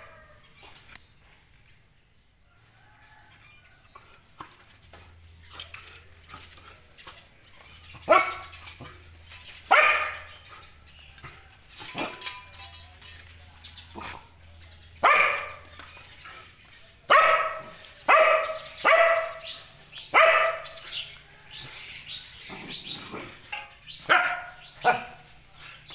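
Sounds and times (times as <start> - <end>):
dog barking: 8.0 - 8.6, 9.7 - 10.4, 15.0 - 15.7, 17.1 - 21.0, 24.0 - 25.3.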